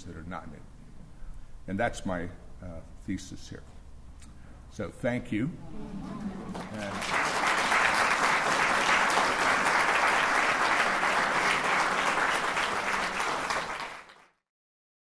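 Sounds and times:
audience applauding: 5.6s - 14.4s.

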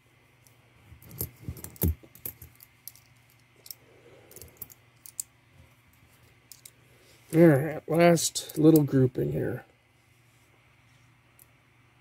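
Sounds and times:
coins clicking: 1.1s - 5.3s.

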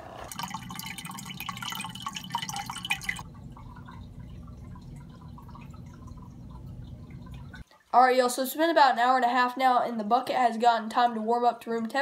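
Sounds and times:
aquarium filter water splashing: 0.0s - 9.1s
low pump hum: 0.1s - 7.9s
faint water trickle: 0.2s - 9.6s.

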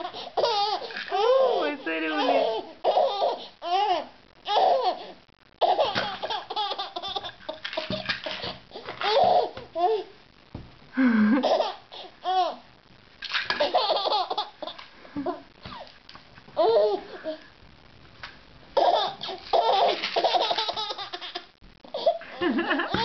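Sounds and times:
baby laughing: 0.0s - 5.0s, 5.6s - 10.1s, 11.4s - 12.6s, 13.5s - 15.9s, 16.6s - 17.2s, 18.8s - 23.0s
plastic bottles knocking: 7.6s - 9.7s.

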